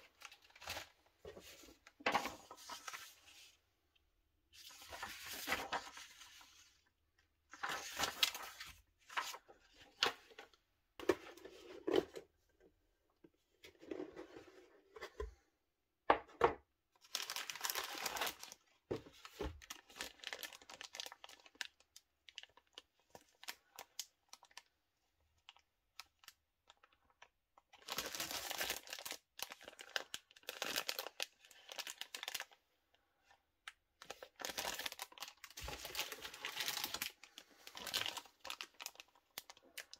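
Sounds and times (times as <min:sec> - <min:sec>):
paper sheet rustling: 0:00.2 - 0:03.6, 0:04.6 - 0:06.8, 0:07.5 - 0:10.2
plastic bags crinkling: 0:17.1 - 0:18.7, 0:19.6 - 0:24.6, 0:26.2 - 0:32.6, 0:34.0 - 0:39.9.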